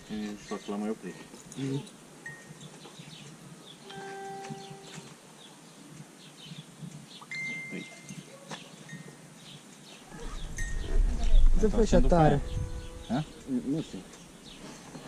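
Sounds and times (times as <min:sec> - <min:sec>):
birds chirping: 0:00.0 - 0:15.0
livestock bells ringing: 0:03.9 - 0:05.0.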